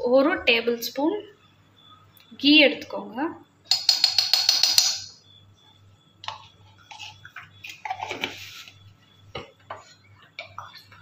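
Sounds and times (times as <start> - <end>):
spoon scraping pan: 6.3 - 10.5.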